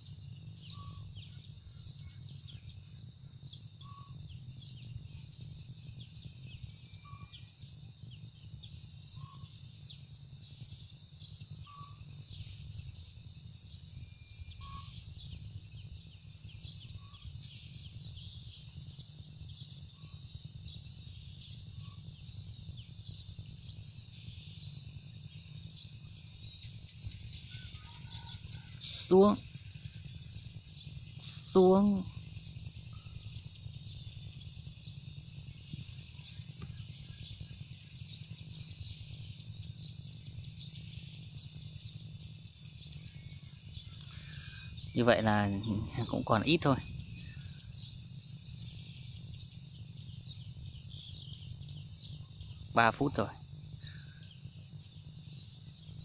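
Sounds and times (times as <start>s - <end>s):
sparrows chirping: 0.0s - 56.0s
faint low bird call: 14.3s - 15.8s, 25.6s - 30.5s, 42.9s - 47.9s.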